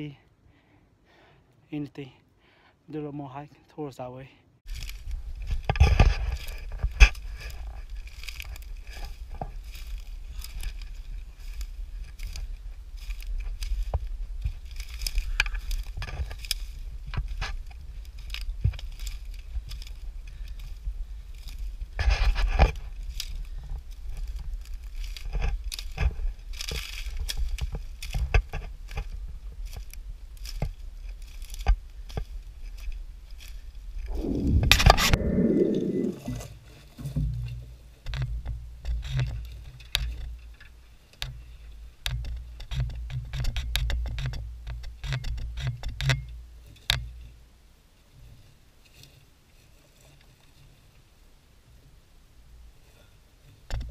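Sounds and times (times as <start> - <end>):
footsteps crunching on pine needles: 4.7 - 36.6
low rumble: 34.0 - 36.6.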